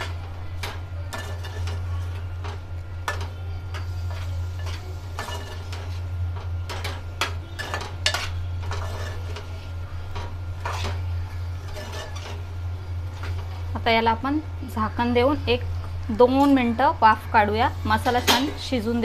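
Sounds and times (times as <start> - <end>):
spoon scraping metal pot: 7.6 - 9.5, 11.6 - 12.4.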